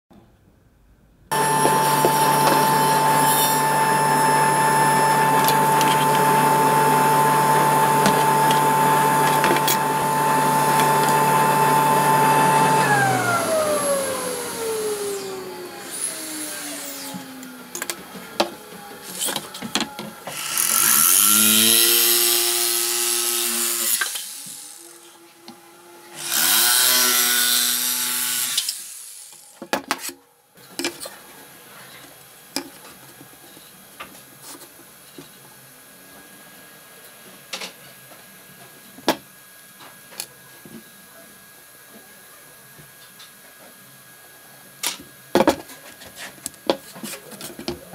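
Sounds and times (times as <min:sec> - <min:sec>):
power tool motor whining: 0:01.3 - 0:29.5.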